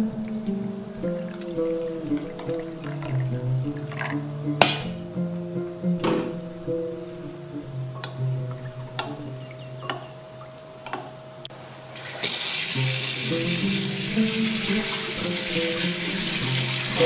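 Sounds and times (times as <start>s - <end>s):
tap water running into steel sink: 12.0s - 17.0s.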